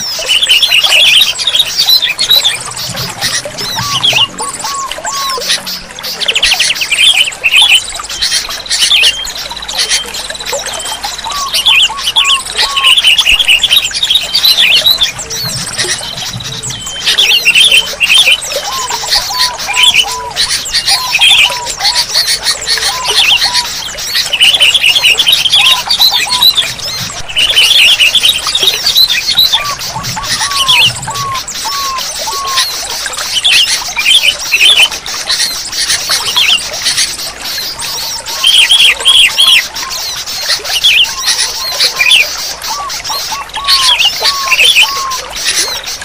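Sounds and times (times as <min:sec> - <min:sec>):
bulbuls calling: 0:00.0 - 0:46.0
rapid high bird chattering: 0:11.0 - 0:46.0.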